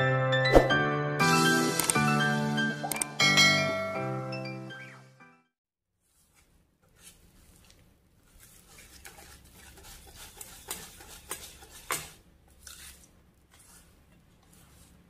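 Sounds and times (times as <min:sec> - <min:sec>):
whisk stirring thick batter: 0:06.0 - 0:15.0
whisk clinking on metal bowl: 0:08.4 - 0:13.8.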